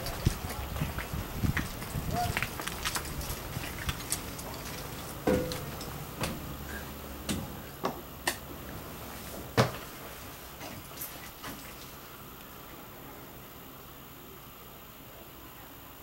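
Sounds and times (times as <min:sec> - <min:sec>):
footsteps on metal steps: 0:00.0 - 0:07.6.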